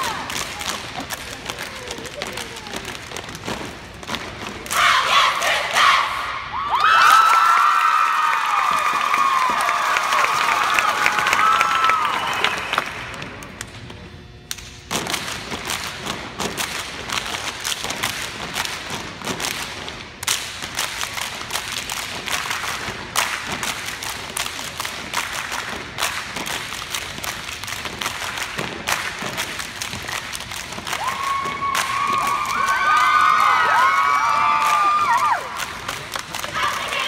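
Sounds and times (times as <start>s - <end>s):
crowd cheering and whooping: 6.5s - 12.9s, 31.0s - 35.6s
stamping and clapping in unison: 14.6s - 36.9s.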